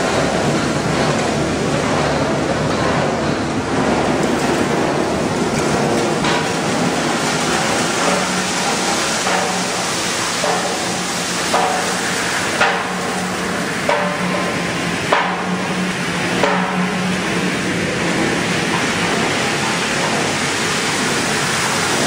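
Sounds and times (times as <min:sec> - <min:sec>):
industrial machinery din: 0:00.0 - 0:22.0
machine hum: 0:00.0 - 0:22.0
sharp knocks: 0:10.4 - 0:15.7, 0:16.4 - 0:17.2.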